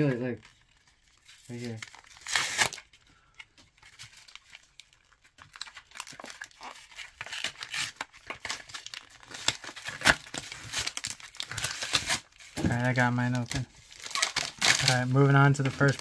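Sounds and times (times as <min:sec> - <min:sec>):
card pack wrapper crinkling: 0:00.0 - 0:16.0.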